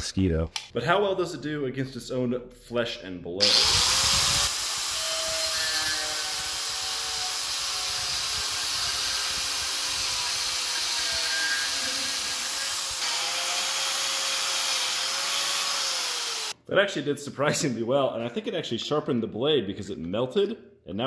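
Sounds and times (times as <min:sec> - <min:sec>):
angle grinder motor whine: 0:03.4 - 0:16.6.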